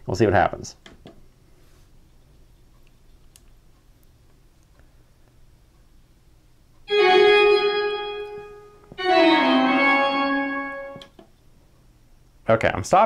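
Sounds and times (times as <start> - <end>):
sustained music chords from speakers: 6.9 - 11.1.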